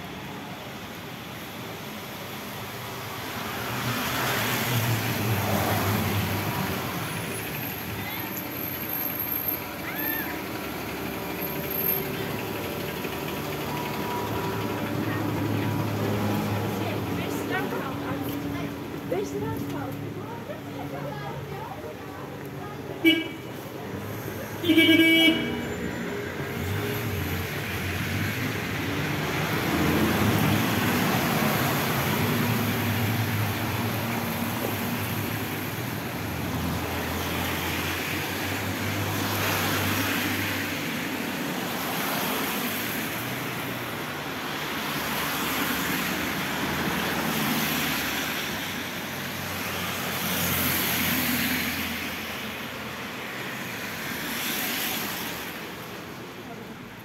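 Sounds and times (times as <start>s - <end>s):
tyres hissing on wet road: 0.0s - 20.5s, 22.4s - 57.0s.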